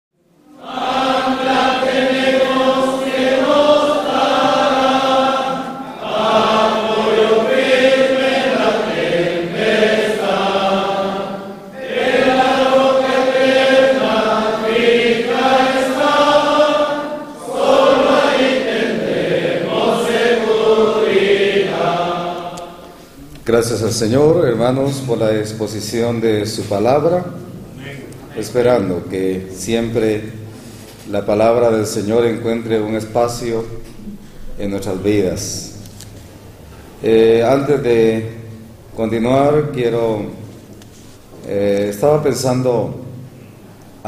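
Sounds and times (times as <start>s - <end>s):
group singing a hymn: 0.4s - 23.4s.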